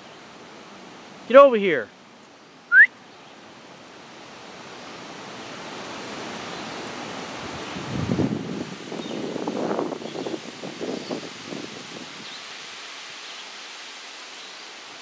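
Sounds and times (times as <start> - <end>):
wind rustling leafy trees: 0.0 - 15.0
short rising whistle: 2.7 - 2.9.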